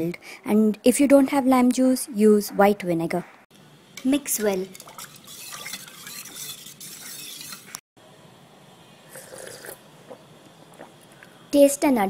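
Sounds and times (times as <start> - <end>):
metal spoon stirring in a pot: 4.4 - 7.8.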